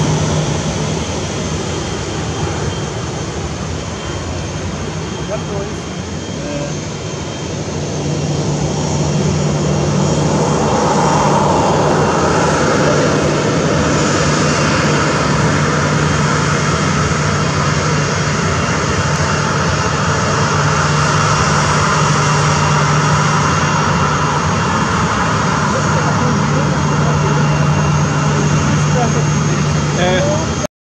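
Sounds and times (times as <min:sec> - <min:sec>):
jet engines at taxi power: 0:00.0 - 0:30.7
steady low hum: 0:06.5 - 0:30.6.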